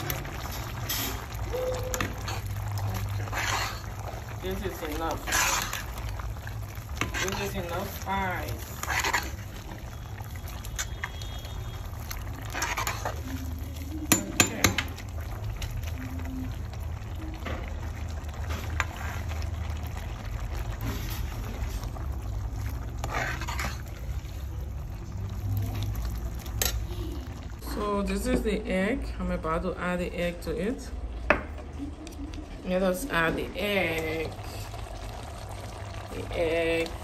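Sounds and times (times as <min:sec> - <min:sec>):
spoon clinking against pot: 0:14.1 - 0:14.9.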